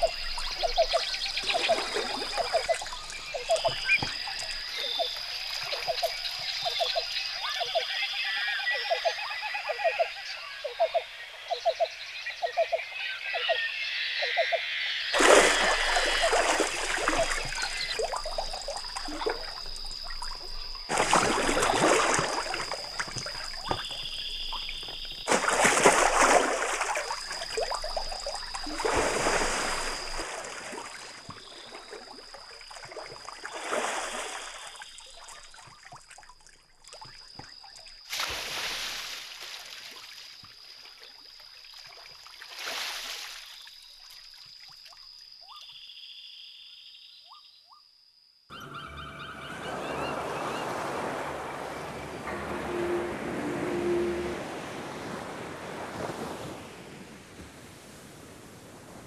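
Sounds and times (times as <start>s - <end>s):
water rushing: 0.0s - 7.9s, 15.2s - 36.2s, 48.6s - 59.0s
frogs croaking: 0.0s - 57.0s
thin high tone: 48.5s - 55.6s.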